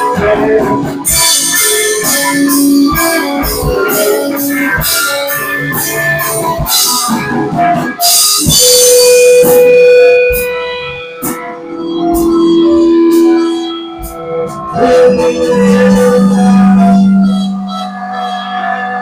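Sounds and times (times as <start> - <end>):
live band playing: 0.0 - 19.0
held note: 8.1 - 19.0.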